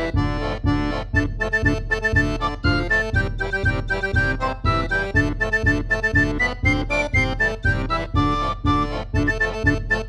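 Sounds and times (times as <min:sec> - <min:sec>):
background music with beat: 0:00.0 - 0:10.0.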